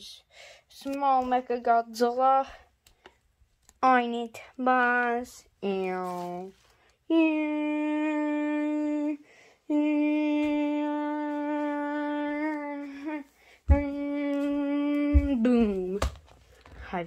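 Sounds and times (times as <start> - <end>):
child humming droning notes: 7.1 - 15.2
low thumps: 13.7 - 16.2.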